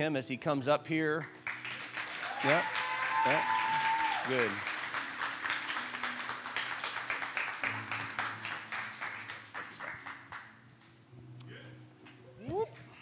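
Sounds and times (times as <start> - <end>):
congregation applauding: 1.2 - 10.6.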